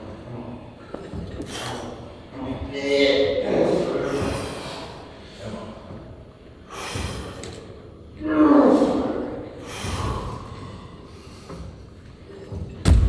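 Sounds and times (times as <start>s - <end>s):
man exhaling forcefully: 6.7s - 7.4s, 9.6s - 10.4s.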